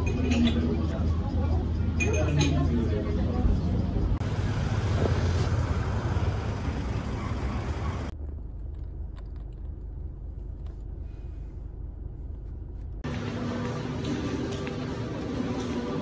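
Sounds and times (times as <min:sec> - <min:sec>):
open-air ambient noise: 0:00.0 - 0:16.0
low muffled rumble: 0:03.1 - 0:13.2.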